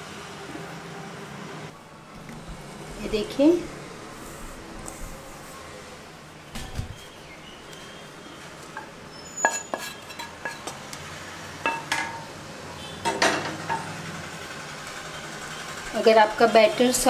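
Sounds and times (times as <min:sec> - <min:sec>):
steel bowl and cup clinking: 0:08.8 - 0:10.7, 0:11.6 - 0:12.3.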